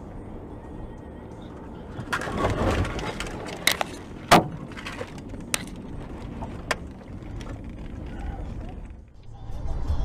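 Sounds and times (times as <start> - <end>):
vehicle collision crunch: 1.5 - 9.2.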